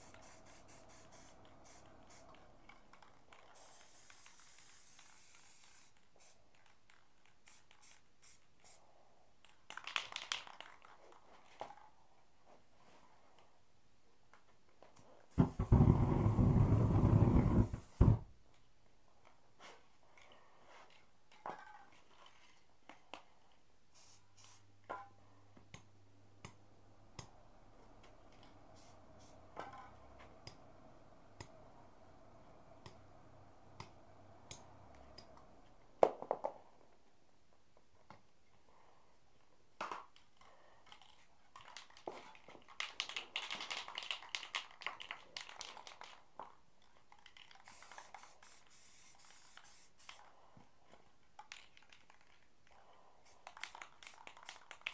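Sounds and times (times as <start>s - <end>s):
aerosol spray can hissing: 0.0s - 2.4s, 3.6s - 6.4s, 7.4s - 8.8s, 23.9s - 24.6s, 28.8s - 29.4s, 47.6s - 50.2s
spray cans clicking and knocking: 9.4s - 11.8s, 40.9s - 50.2s, 51.4s - 52.5s, 53.3s - 54.9s.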